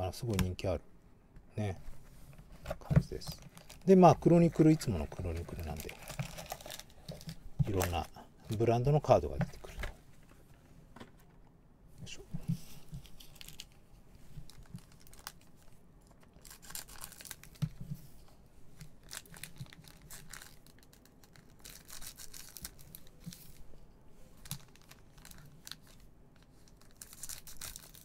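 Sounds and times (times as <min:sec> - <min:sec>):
foil wrappers crinkling and tearing: 0:03.1 - 0:09.3, 0:13.0 - 0:13.8, 0:14.5 - 0:17.7, 0:18.9 - 0:23.6, 0:24.4 - 0:28.0.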